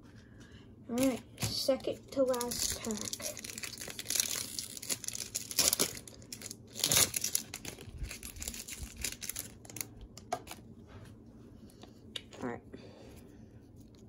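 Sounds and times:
plastic wrapper crinkling and tearing: 0:00.9 - 0:10.6.

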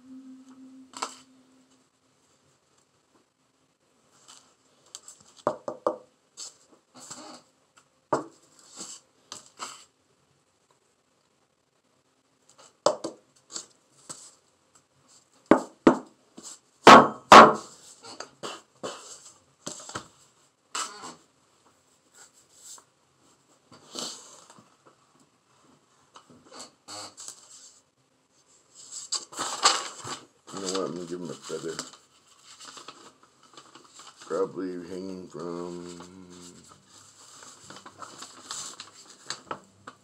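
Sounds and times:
paper rustling and scraping: 0:08.3 - 0:09.9, 0:22.0 - 0:24.6, 0:26.5 - 0:27.8, 0:28.4 - 0:34.4, 0:35.5 - 0:40.0.

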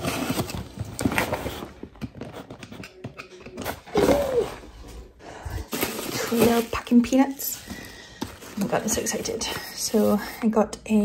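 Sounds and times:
cardboard tearing and crackling: 0:00.0 - 0:02.7, 0:05.7 - 0:07.4.

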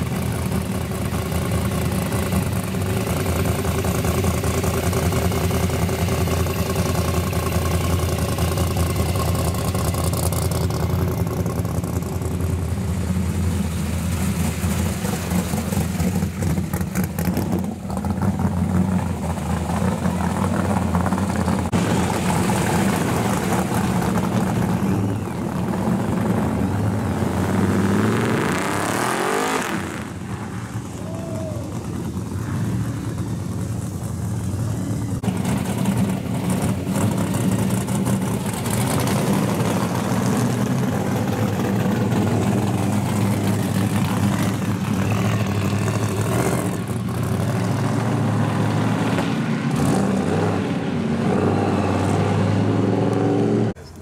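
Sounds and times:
car engine revving: 0:00.0 - 0:30.9
muscle car engines rumbling: 0:00.0 - 0:54.0.

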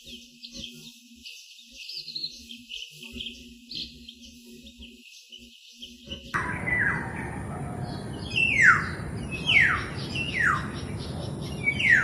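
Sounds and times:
bird giving harsh calls: 0:06.4 - 0:12.0
steady background hiss: 0:06.4 - 0:12.0.

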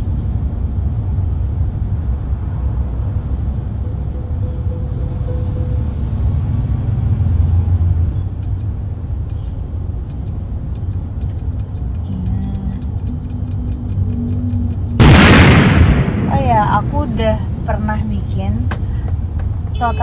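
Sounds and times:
high electronic beeps: 0:08.4 - 0:15.0.

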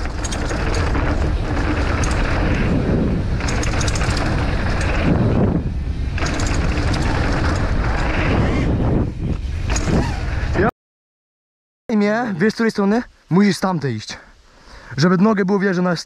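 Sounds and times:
bike clicks and rattles: 0:00.0 - 0:10.4
wind buffeting microphone: 0:00.0 - 0:10.7.

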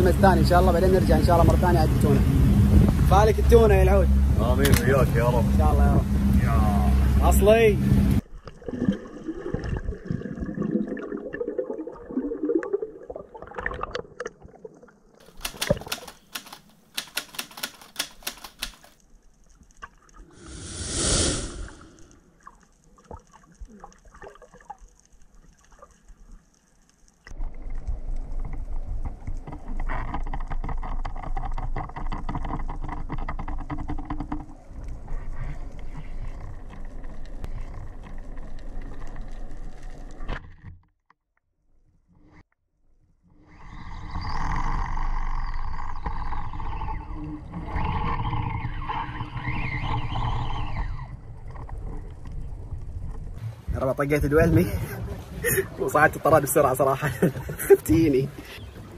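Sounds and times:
underwater bubbles: 0:08.2 - 0:15.2, 0:21.7 - 0:40.4
dense rapid clicking: 0:15.2 - 0:19.0
steady underwater rush: 0:20.2 - 0:22.5, 0:53.3 - 0:58.9.

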